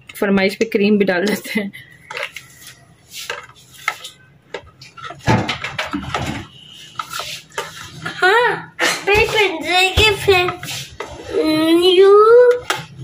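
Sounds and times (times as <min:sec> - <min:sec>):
spoon scraping plastic tub: 0:02.0 - 0:08.2, 0:09.1 - 0:11.6
child's voice: 0:08.2 - 0:12.7.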